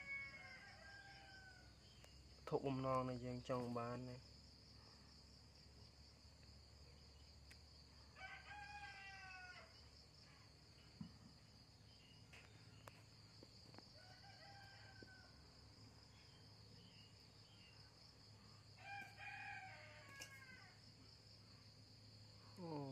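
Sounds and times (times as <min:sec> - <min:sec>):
distant rooster crowing: 0:00.0 - 0:01.8, 0:08.1 - 0:09.8, 0:13.7 - 0:16.1, 0:17.5 - 0:20.9
insect trill: 0:00.0 - 0:22.9.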